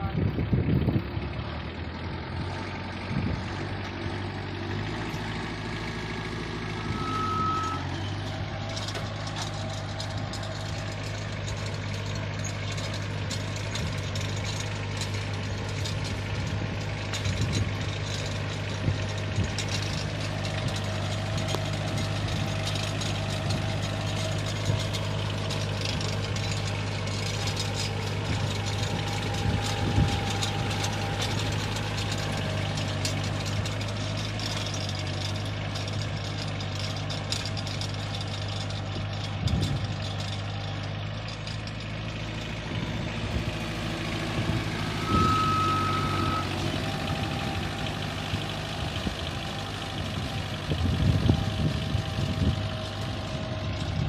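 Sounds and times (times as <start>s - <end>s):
diesel engine idling: 0.0s - 54.0s
short high beep: 6.9s - 7.9s, 45.0s - 46.6s.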